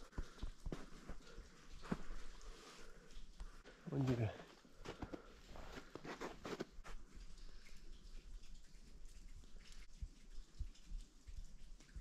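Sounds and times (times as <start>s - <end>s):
footsteps crunching in snow: 3.9s - 7.0s.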